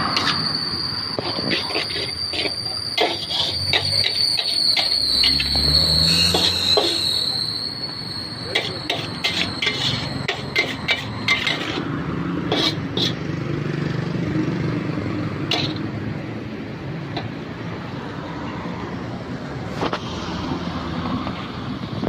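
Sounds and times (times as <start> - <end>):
metal spatula scraping a wok: 0.0 - 7.4, 8.5 - 13.2, 15.5 - 15.9
steady high-pitched whine: 0.0 - 13.2.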